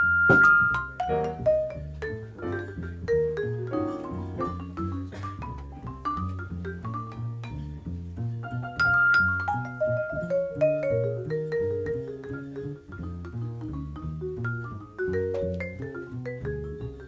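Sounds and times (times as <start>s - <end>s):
drum kit: 0.0s - 7.6s
vibraphone soloing: 0.0s - 7.8s, 8.4s - 17.0s
upright bass line: 0.0s - 17.0s.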